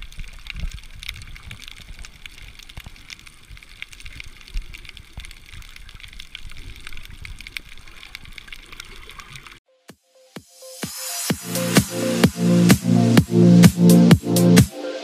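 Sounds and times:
snapping shrimp crackling underwater: 0:00.0 - 0:09.6
underwater rumble and thumping: 0:00.0 - 0:09.6.

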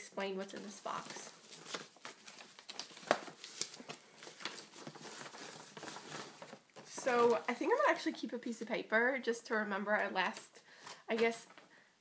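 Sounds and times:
paper and cardboard rustling: 0:00.1 - 0:08.2.

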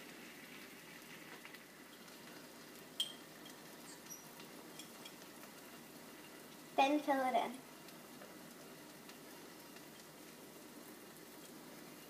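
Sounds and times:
egg sizzling in a pan: 0:00.0 - 0:12.0
light clink: 0:03.0 - 0:03.6, 0:04.8 - 0:05.2.

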